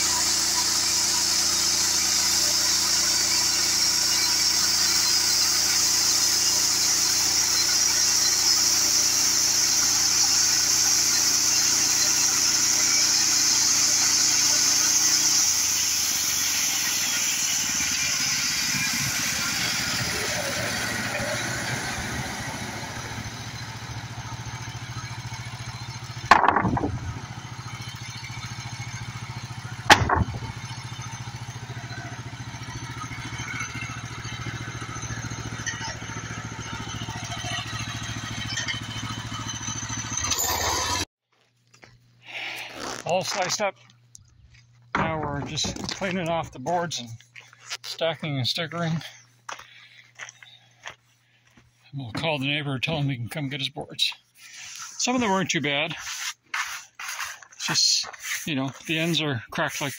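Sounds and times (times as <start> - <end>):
band blade hissing through wood: 0.0 - 23.8, 55.9 - 59.9
engine drone: 0.0 - 41.1, 42.3 - 59.9
loud wooden knock: 26.3 - 27.2, 29.9 - 30.4.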